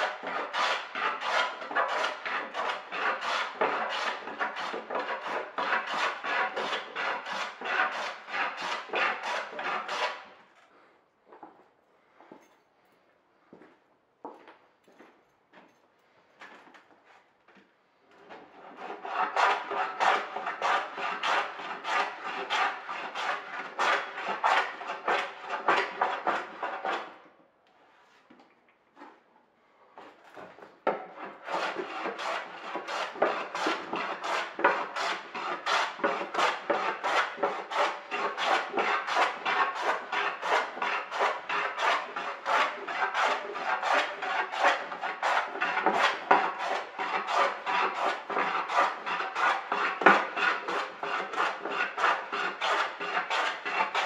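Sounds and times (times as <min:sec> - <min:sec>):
hand plane rasping on wood: 0:00.0 - 0:10.3, 0:18.3 - 0:27.2, 0:30.9 - 0:54.0.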